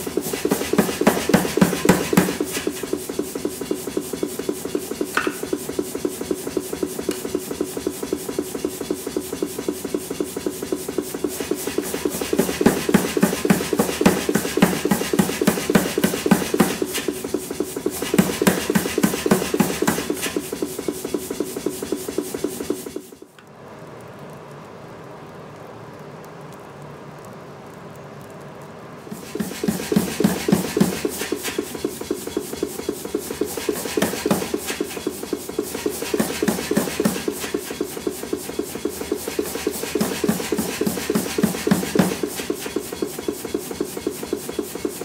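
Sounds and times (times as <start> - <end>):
forge fire hissing: 0.0 - 45.0
power hammer striking steel: 0.3 - 2.8, 5.1 - 5.6, 29.1 - 43.3.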